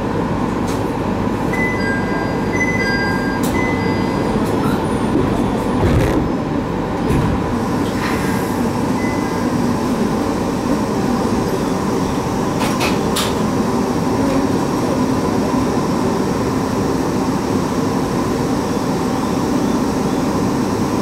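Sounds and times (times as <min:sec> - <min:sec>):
train cabin rumble: 0:00.1 - 0:18.7.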